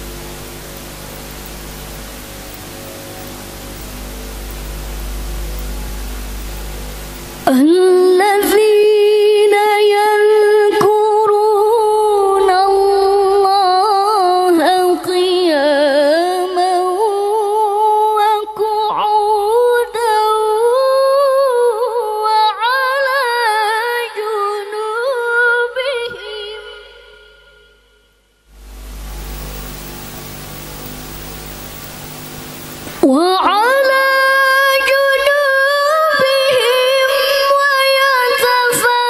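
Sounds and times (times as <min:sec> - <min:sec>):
woman chanting melodically into a microphone: 0:07.4 - 0:27.7, 0:32.9 - 0:39.0.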